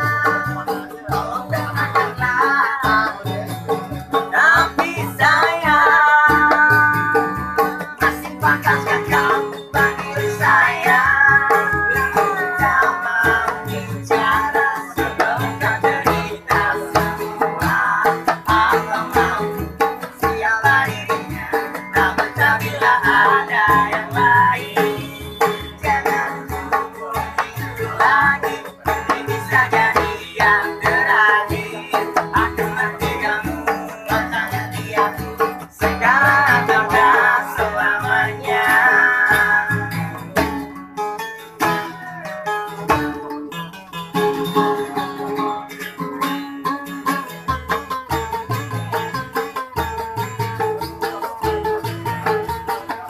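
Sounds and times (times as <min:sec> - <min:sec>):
group singing: 0:00.0 - 0:40.7
acoustic guitars strumming: 0:00.0 - 0:53.0
hand drum beating: 0:00.0 - 0:53.0.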